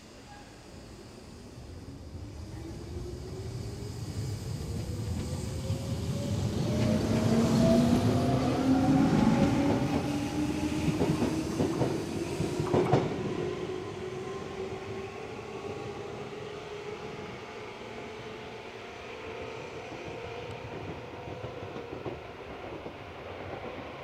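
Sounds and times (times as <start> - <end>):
train wheel clicks on rails: 10.8 - 13.2.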